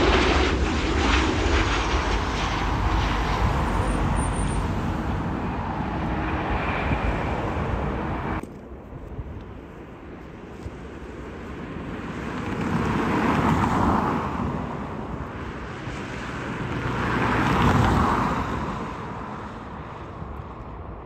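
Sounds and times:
outdoor background noise: 0.0s - 21.0s
vehicles passing: 1.3s - 8.5s, 10.0s - 21.0s.

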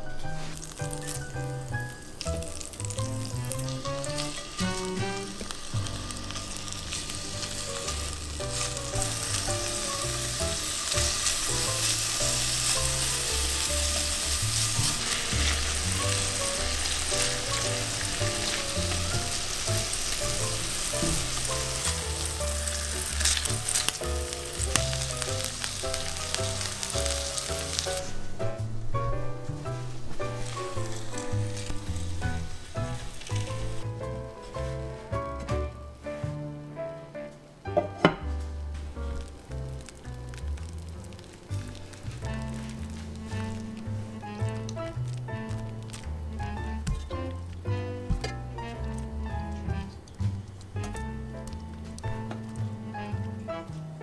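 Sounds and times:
tongs stirring: 0.4s - 28.0s, 39.7s - 47.4s
butter sizzling in a skillet: 0.4s - 28.4s, 29.8s - 33.9s, 39.0s - 47.1s.

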